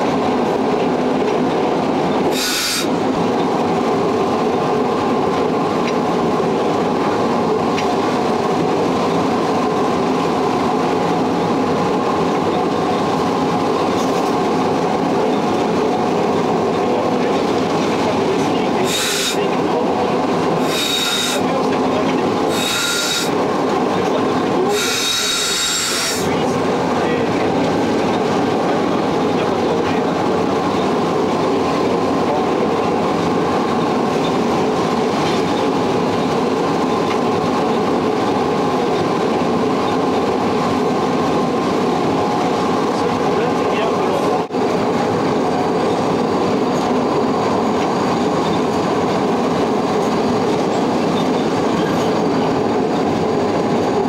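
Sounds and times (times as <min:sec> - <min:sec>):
locomotive motor hum and rumble: 0:00.0 - 0:54.0
high-pitched wheel squeals: 0:02.3 - 0:02.9, 0:18.8 - 0:19.4, 0:20.6 - 0:21.4, 0:22.5 - 0:23.4, 0:24.7 - 0:26.3.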